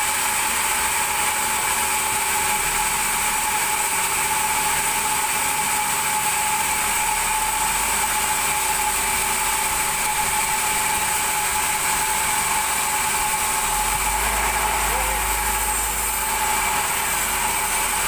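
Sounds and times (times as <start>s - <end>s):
band saw whine: 0.0s - 18.0s
hiss: 13.0s - 17.9s.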